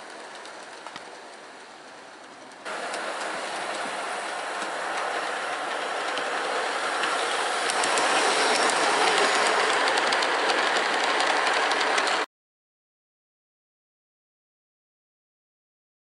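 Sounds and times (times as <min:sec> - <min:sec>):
model train wheels rumbling on rails: 0:00.0 - 0:12.3
clicks over rail joints: 0:02.3 - 0:12.2.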